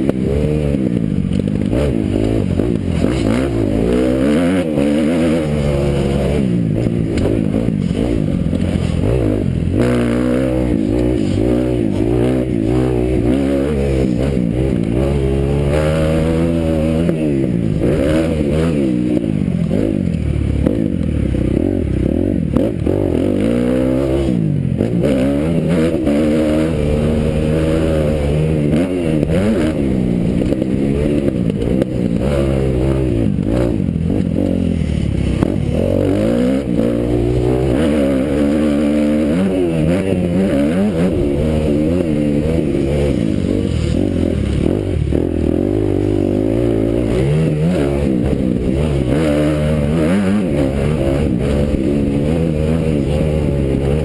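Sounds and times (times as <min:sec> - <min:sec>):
motocross bike engine revving: 0:00.0 - 0:54.0.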